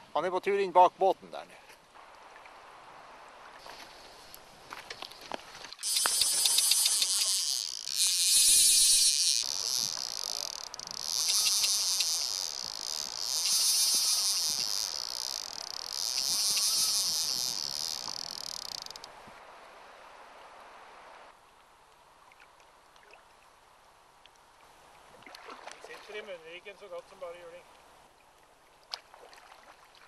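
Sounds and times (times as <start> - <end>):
fishing reel drag buzzing: 5.8 - 19.1.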